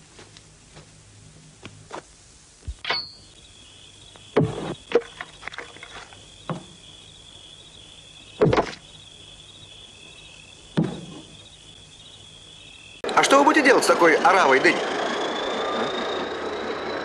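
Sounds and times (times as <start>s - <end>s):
crickets chirping: 2.7s - 14.0s
axe chopping firewood: 10.8s - 11.2s.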